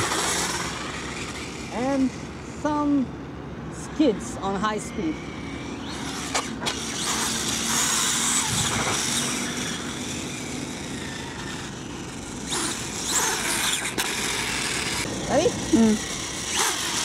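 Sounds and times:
electric motor whining: 0.0s - 2.5s, 3.8s - 17.0s.

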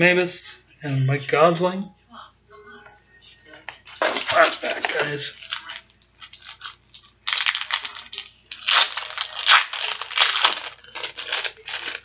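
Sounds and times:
plastic wrapper tearing and crinkling: 4.0s - 12.0s.

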